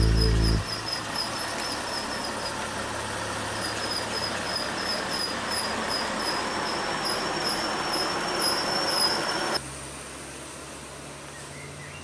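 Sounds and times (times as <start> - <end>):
high chirping squeak: 4.0 - 9.6.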